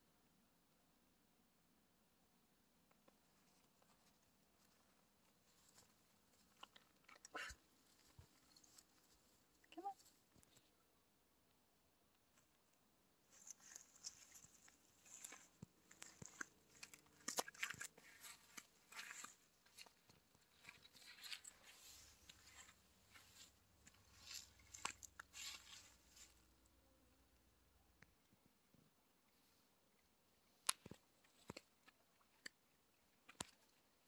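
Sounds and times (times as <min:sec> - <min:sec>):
dry leaves rustling and crackling: 0:20.6 - 0:26.4
small clicks and snaps: 0:30.6 - 0:32.6, 0:33.2 - 0:33.8.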